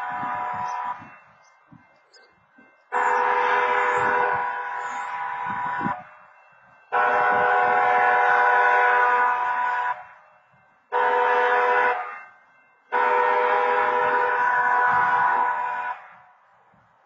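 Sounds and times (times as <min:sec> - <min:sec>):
railroad crossing horn blasts: 0:00.0 - 0:01.2, 0:02.9 - 0:06.2, 0:06.9 - 0:10.2, 0:10.9 - 0:16.4.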